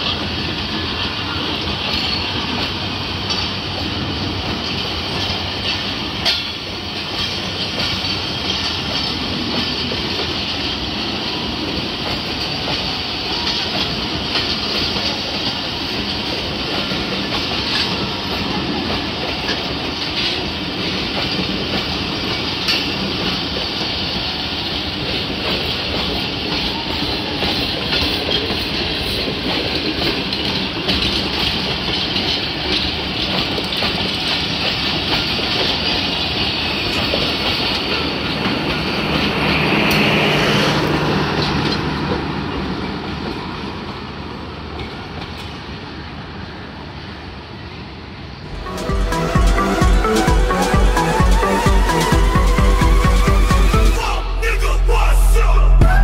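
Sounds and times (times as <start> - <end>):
train wheels rumbling on rails: 0.0 - 53.8
wheels clicking over rail joints: 24.8 - 39.3.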